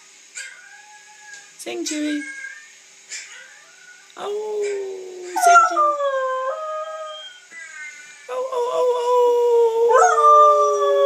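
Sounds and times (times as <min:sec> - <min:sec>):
dog howling: 0:05.2 - 0:07.4, 0:08.7 - 0:11.0.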